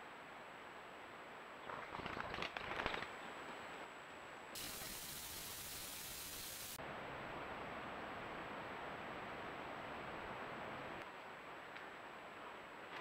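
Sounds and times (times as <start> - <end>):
microphone hiss: 3.2 - 13.0.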